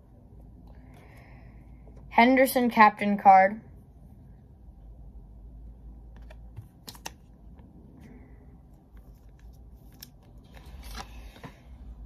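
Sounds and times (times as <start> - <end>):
trading cards being handled: 6.0 - 8.1, 8.7 - 11.8
cards clicking: 6.1 - 7.3.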